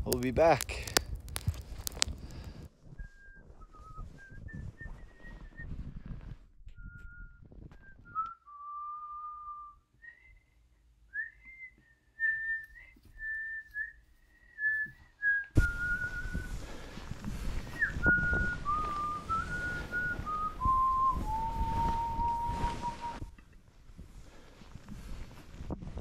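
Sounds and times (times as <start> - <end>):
person whistling a slow tune: 2.9 - 23.5.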